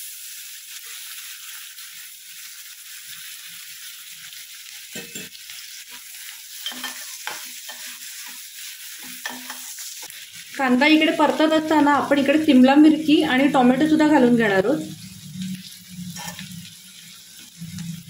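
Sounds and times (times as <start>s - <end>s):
onion sizzling in oil: 0.0s - 18.0s
metal spoon scraping pan: 6.6s - 8.0s, 9.0s - 9.8s, 16.1s - 16.6s.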